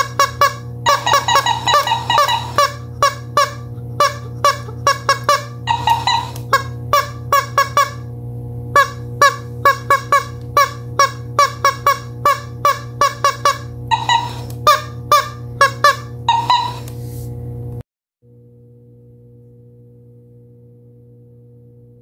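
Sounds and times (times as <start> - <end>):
rubber chicken squeaking: 0.0 - 8.0, 8.8 - 16.9
steady low hum: 0.0 - 22.0.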